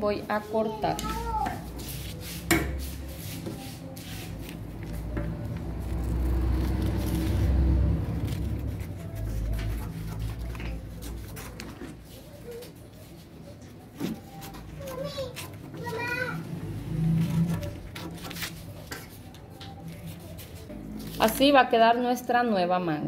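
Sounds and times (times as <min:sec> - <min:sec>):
paper rustling: 0:03.0 - 0:16.1, 0:17.0 - 0:21.5
scissors snipping paper: 0:04.4 - 0:11.8.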